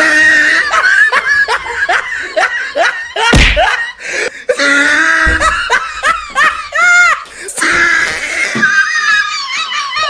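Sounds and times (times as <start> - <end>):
laughter: 0.0 - 7.6, 8.4 - 10.0
heavy thump: 5.3 - 6.7.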